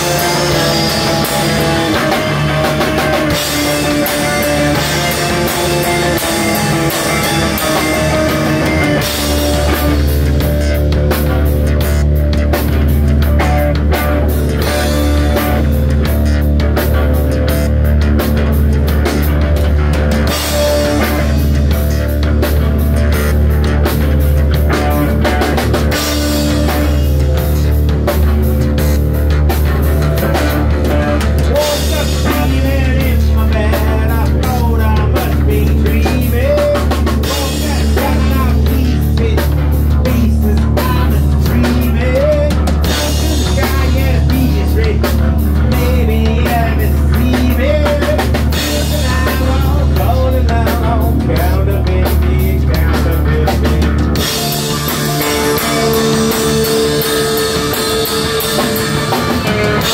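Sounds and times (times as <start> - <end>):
bass guitar: 0.0 - 59.9
drum kit: 0.0 - 59.9
electric guitar lead: 0.0 - 59.9.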